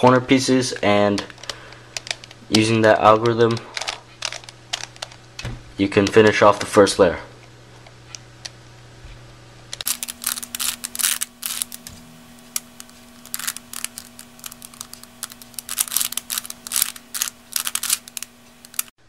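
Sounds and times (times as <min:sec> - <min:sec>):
plastic puzzle clicking: 0:01.2 - 0:02.4, 0:03.1 - 0:05.2, 0:09.8 - 0:11.8, 0:12.5 - 0:18.9.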